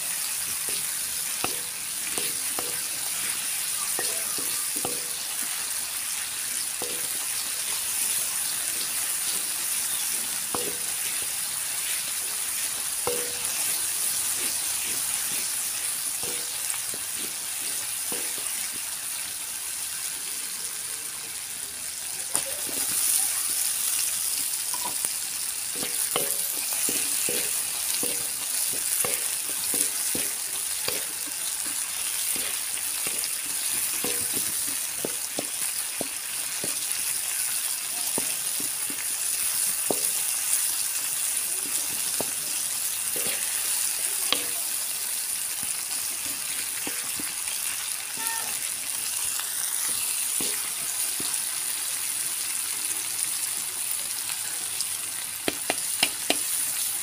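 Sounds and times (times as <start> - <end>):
paste sizzling in hot oil: 0.0 - 57.0
spatula scraping a pan: 25.8 - 36.8.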